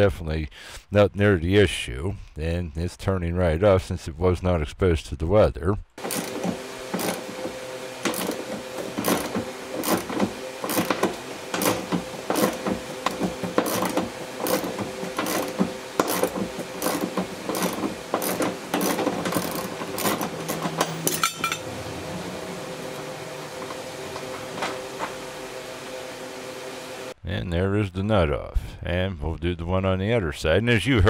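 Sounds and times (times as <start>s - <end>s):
hand ratchet clicking: 6.0s - 7.4s, 8.0s - 21.6s.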